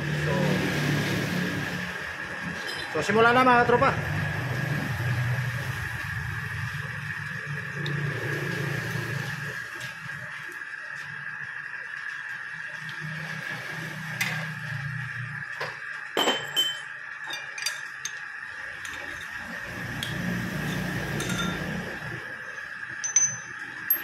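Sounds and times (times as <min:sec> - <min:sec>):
metal tools clinking: 0:16.2 - 0:18.2, 0:21.2 - 0:21.7, 0:23.0 - 0:24.0.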